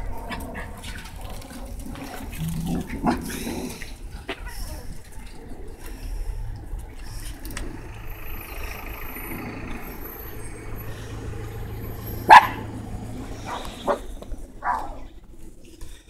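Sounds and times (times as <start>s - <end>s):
steady background noise: 0.0s - 16.0s
puppy barking: 12.2s - 15.1s.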